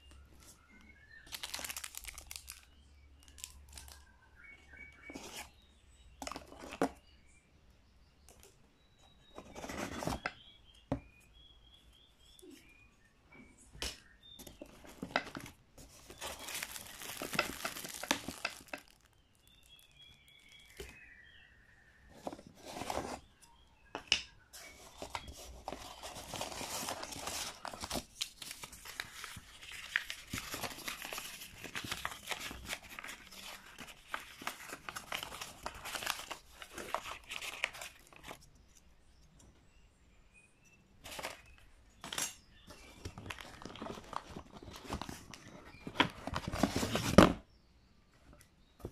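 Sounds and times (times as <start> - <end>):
cardboard box rustling and scraping: 9.4 - 10.3, 22.1 - 23.3.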